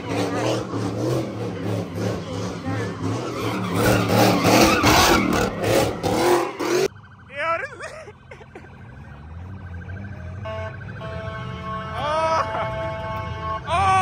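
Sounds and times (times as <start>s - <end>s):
tyres screeching: 0.0s - 6.9s
car engine revving: 0.0s - 7.2s, 8.5s - 13.7s
rising and falling wail: 0.0s - 9.9s.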